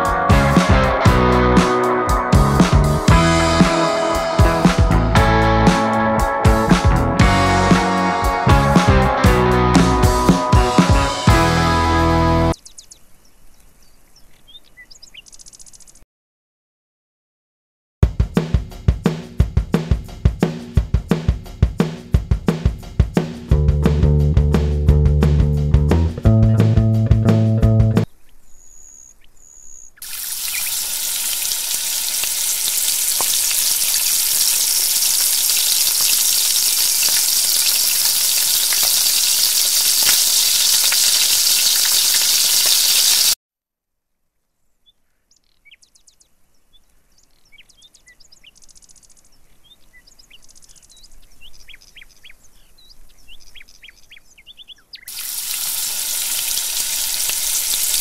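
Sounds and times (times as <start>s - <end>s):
faint scattered crackles: 30.0s - 43.4s
loud sizzle of deep-frying: 30.0s - 43.4s, 55.1s - 58.0s.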